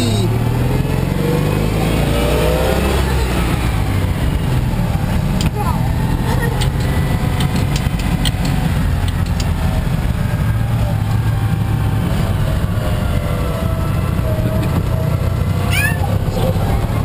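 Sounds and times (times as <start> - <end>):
car engine humming: 0.0 - 17.0
road and wind noise: 0.0 - 17.0.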